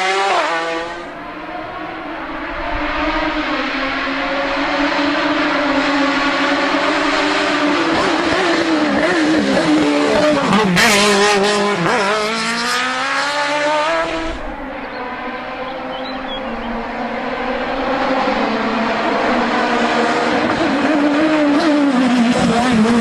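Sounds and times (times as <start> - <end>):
race car engine passing: 0.0 - 23.0.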